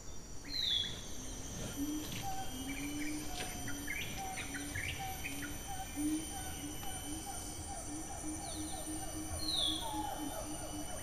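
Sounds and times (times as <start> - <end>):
high insect drone: 0.0 - 11.0.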